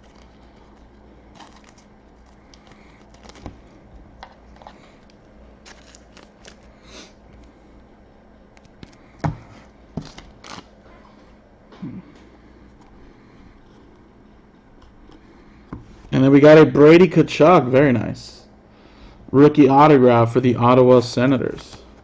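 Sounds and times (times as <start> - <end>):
trading cards rustling: 0.0 - 7.6.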